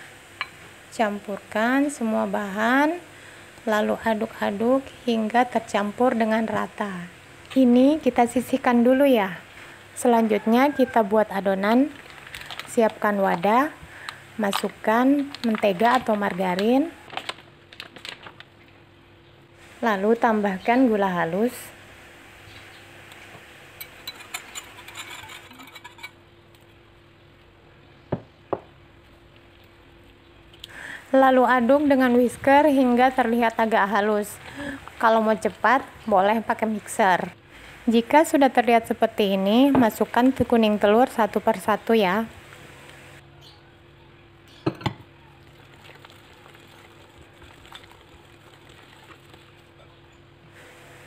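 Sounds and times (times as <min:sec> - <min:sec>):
whisk scraping in glass bowl: 0:24.0 - 0:26.2.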